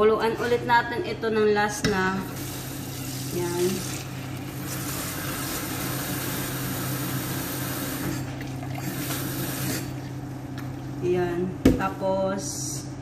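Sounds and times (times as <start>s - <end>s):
low steady hum: 0.0s - 13.0s
tap water running into pot: 2.3s - 10.0s.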